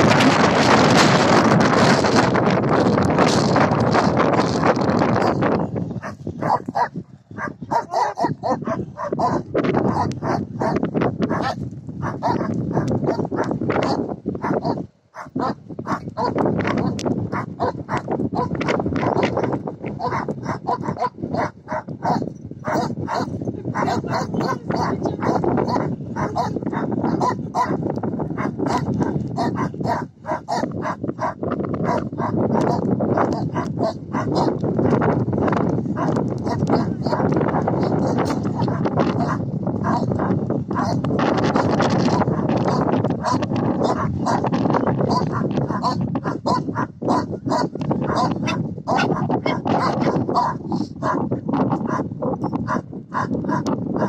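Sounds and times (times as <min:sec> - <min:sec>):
puppies yapping: 0:06.0 - 0:18.5, 0:20.0 - 0:27.8, 0:28.4 - 0:34.6, 0:45.1 - 0:50.5.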